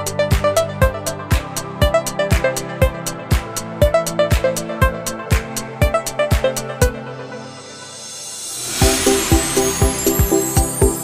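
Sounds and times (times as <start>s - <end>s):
kick drum beat: 0.2s - 6.5s
melodic line: 7.3s - 11.0s
sharp percussive hits: 7.8s - 11.0s.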